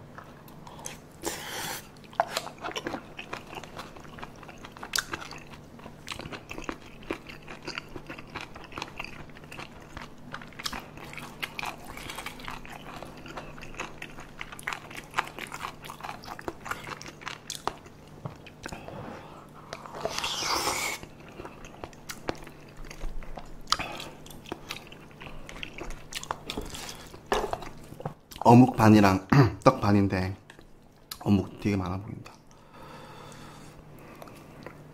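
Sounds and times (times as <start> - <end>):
faint steady hum: 0.0 - 34.9
wet chewing mouth sounds: 0.1 - 18.9, 19.6 - 28.4.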